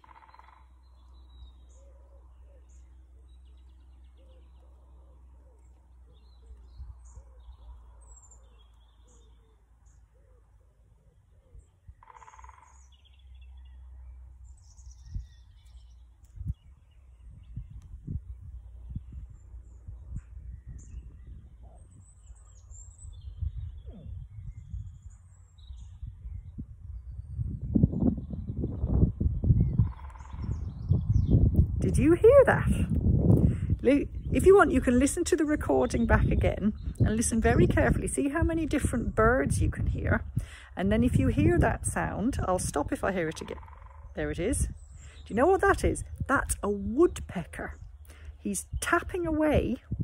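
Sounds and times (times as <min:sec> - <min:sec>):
woodpecker drumming: 0:00.0 - 0:01.8, 0:11.9 - 0:13.2, 0:29.8 - 0:30.6, 0:43.2 - 0:46.7
birds chirping: 0:00.0 - 0:50.0
low steady rumble: 0:12.7 - 0:50.0.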